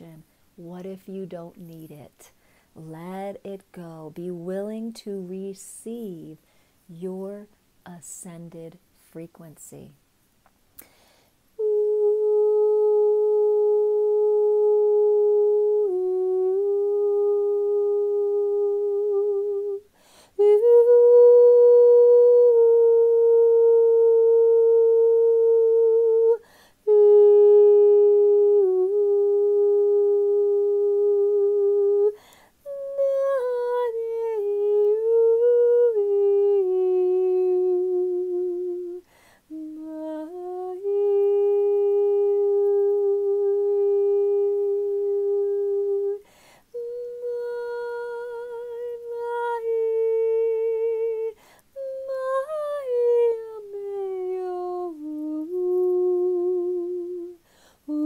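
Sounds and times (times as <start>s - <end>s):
woman singing long held notes: 0.0s - 10.0s, 11.5s - 58.0s
woman breathing: 2.3s - 2.8s, 6.4s - 6.9s, 10.8s - 11.5s, 19.9s - 20.4s, 26.4s - 26.8s, 32.2s - 32.6s, 39.0s - 39.5s, 46.2s - 46.7s, 51.4s - 51.8s, 57.4s - 57.9s.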